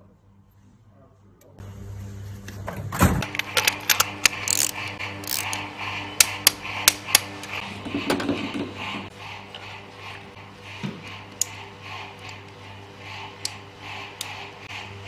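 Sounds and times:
steady low hum: 0.0 - 15.0
metallic clicks of hand tools: 3.2 - 5.6
tool clatter: 3.2 - 5.6.

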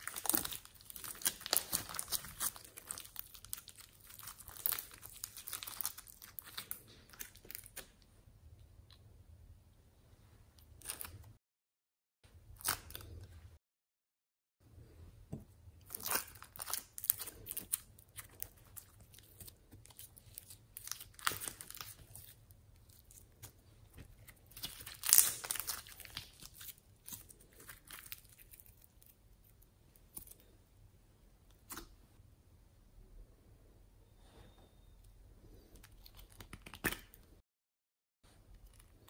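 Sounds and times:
foam toy crunching and crackling: 0.0 - 7.8, 15.9 - 30.4.

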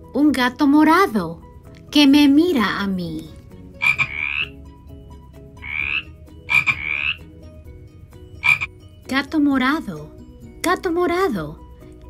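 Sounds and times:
soft background music: 0.0 - 12.0
frog croaking: 3.7 - 4.6, 5.6 - 7.4, 8.4 - 8.7.

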